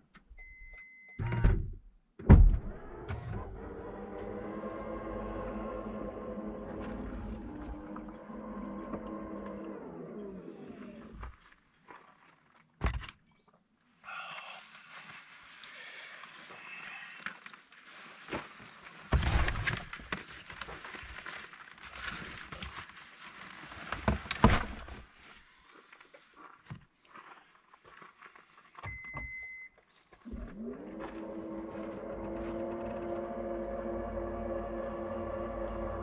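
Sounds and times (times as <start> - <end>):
gear rustling and thumping: 18.4 - 25.1
short beep: 28.9 - 29.8
gong-like music drone: 31.0 - 36.0.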